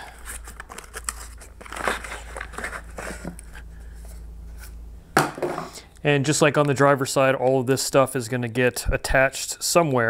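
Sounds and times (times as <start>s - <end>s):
steady low hum: 0.0s - 10.0s
rustling of cardboard box: 0.3s - 4.1s.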